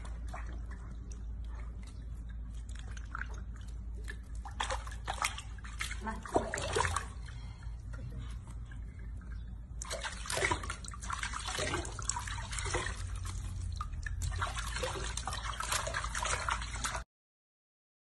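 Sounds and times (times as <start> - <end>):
water sloshing in a sink: 0.0 - 17.0.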